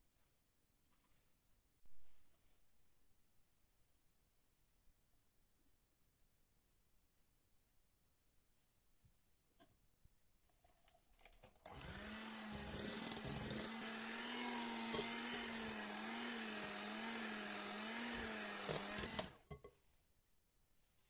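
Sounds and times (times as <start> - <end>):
electric kitchen mixer humming: 11.7 - 19.5.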